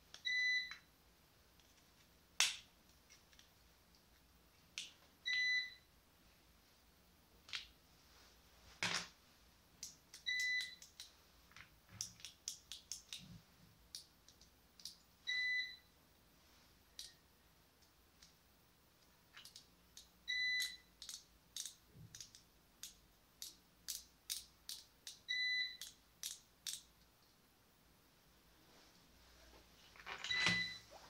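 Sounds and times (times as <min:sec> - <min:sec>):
multimeter beeps: 0:00.2 - 0:00.9, 0:05.2 - 0:05.9, 0:10.2 - 0:10.8, 0:15.3 - 0:15.9, 0:20.3 - 0:20.9, 0:25.3 - 0:25.9, 0:30.3 - 0:30.9.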